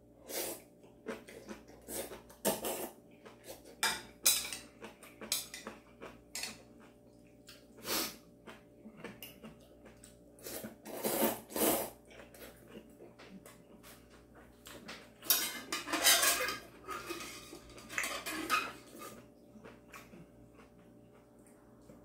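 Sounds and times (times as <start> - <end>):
person slurping noodles: 10.4 - 12.0.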